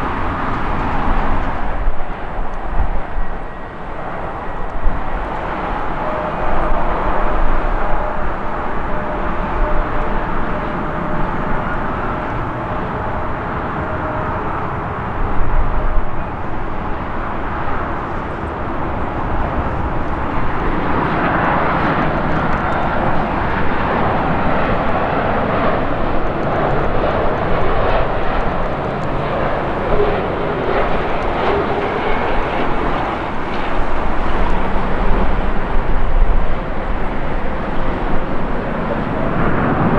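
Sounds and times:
jet engine roar: 0.0s - 39.9s.

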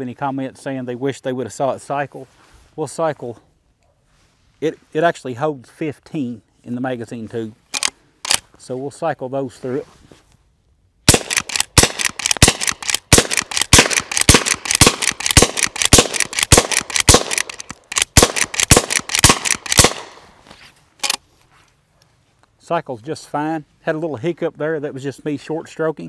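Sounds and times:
rifle lever clacking: 7.7s - 8.4s, 11.1s - 20.1s, 21.0s - 21.2s
gunshots: 11.1s - 20.2s.

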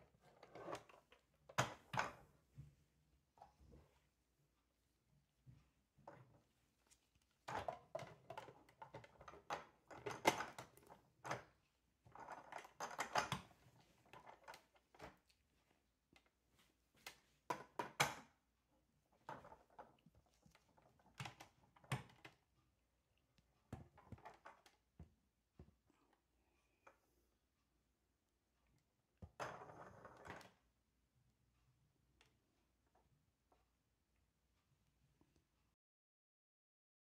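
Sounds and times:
plastic parts clicking and knocking: 7.4s - 15.2s, 17.0s - 18.4s, 19.2s - 22.5s, 23.7s - 25.8s.

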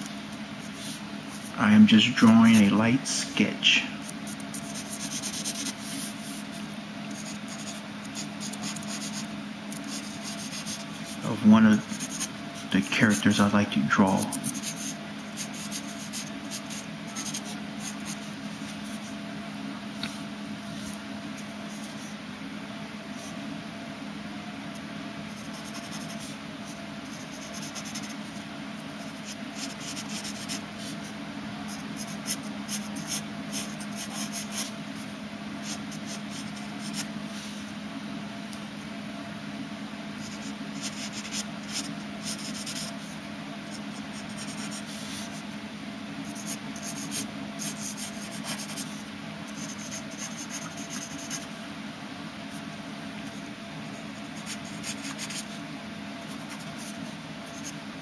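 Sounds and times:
steady low hum: 0.0s - 58.0s
pencil scratching on paper: 4.0s - 6.4s, 7.1s - 13.4s, 14.0s - 19.1s, 25.3s - 26.4s, 27.0s - 28.4s, 29.0s - 31.1s, 31.7s - 34.7s, 40.2s - 45.4s, 46.2s - 51.5s, 54.3s - 55.6s, 56.3s - 57.7s.

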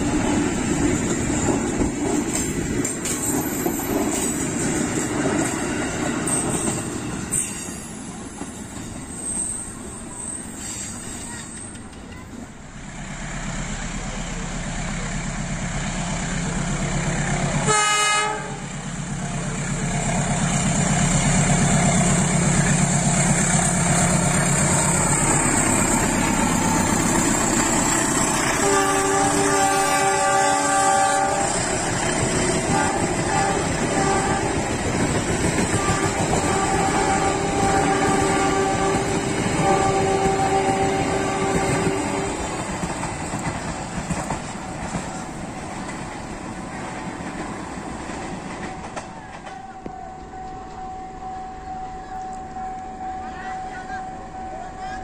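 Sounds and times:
train coaches rolling on rails: 0.0s - 55.0s
train horn: 17.6s - 18.7s, 28.3s - 31.9s, 32.5s - 34.8s, 35.6s - 42.5s, 49.4s - 55.0s.

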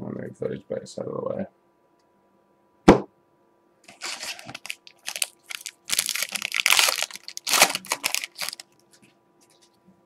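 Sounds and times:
foil wrapper crinkling: 3.9s - 9.7s.

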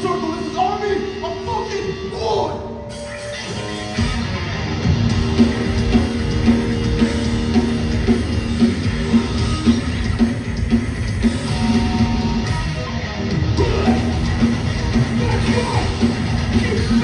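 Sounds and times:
punk band playing live: 0.0s - 17.0s
drum beat: 5.0s - 12.5s, 13.4s - 17.0s.

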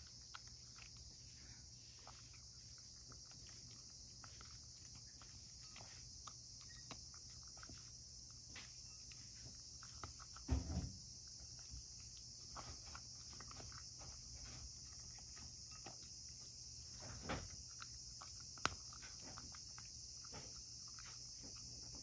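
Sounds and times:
cat crunching dry kibble: 0.0s - 22.0s
thump: 10.5s - 11.0s, 17.0s - 17.5s.

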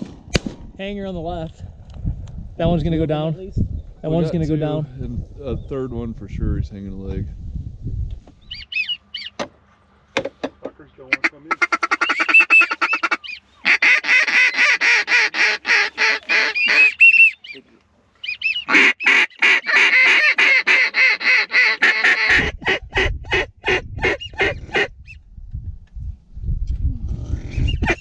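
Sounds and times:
wind rumble on microphone: 0.0s - 8.6s, 22.3s - 28.0s
goose call clucks: 11.1s - 24.9s, 27.7s - 28.0s.

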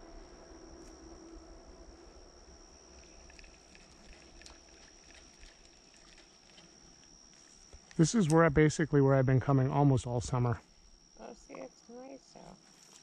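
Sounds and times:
steady high-pitched whine: 0.0s - 13.0s
light ticks and rustles: 3.0s - 8.0s.

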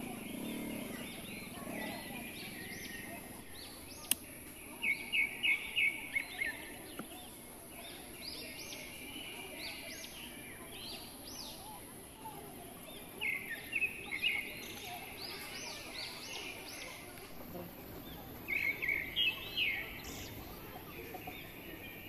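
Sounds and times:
small birds chirping: 0.0s - 22.0s
sharp click: 4.0s - 4.3s.

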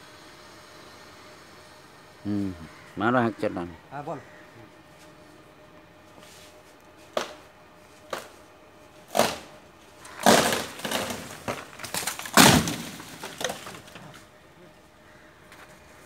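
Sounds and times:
axe chopping branch: 7.1s - 7.4s, 9.1s - 9.5s, 10.1s - 14.1s
branch crashing through leaves: 9.1s - 14.1s
heavy thud of branch landing: 10.1s - 14.1s.

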